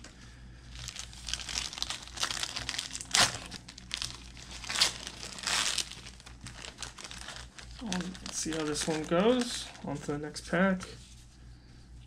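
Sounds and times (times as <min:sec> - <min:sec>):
wrapper crinkling: 0:00.7 - 0:10.0
wrapper tearing: 0:00.8 - 0:09.8.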